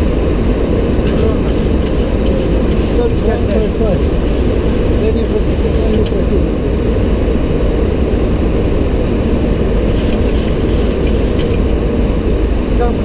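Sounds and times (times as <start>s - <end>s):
aircraft cockpit rumble: 0.0s - 13.0s.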